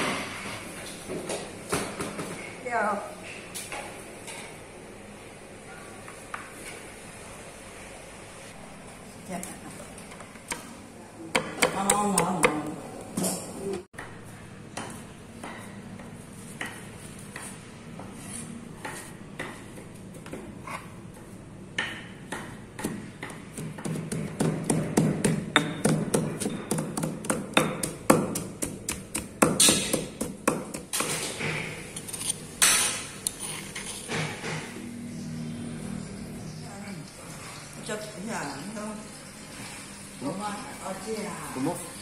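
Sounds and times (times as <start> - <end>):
pestle pounding in stone mortar: 21.8 - 31.4.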